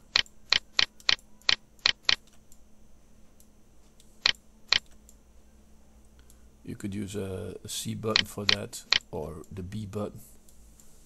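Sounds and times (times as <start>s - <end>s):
mouse button clicking: 0.1s - 2.2s.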